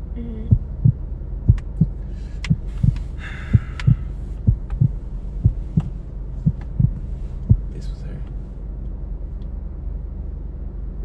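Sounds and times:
low hum: 0.0s - 11.0s
heartbeat double thud: 0.3s - 7.8s.

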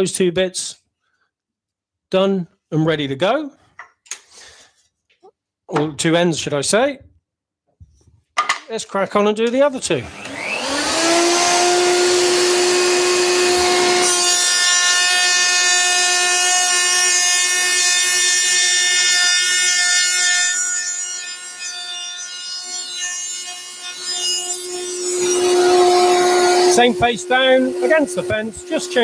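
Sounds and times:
router cutting wood whine: 10.0s - 21.0s, 21.6s - 29.0s.

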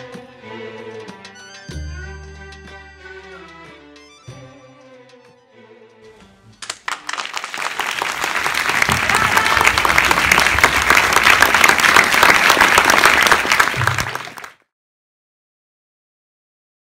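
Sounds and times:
audience applauding: 6.6s - 14.6s.

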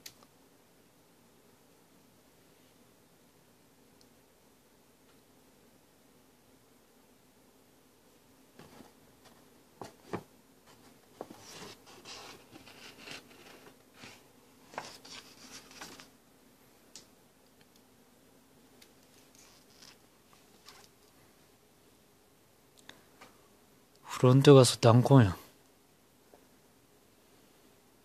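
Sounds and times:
magazine pages rustling: 11.2s - 16.1s, 19.1s - 20.9s.

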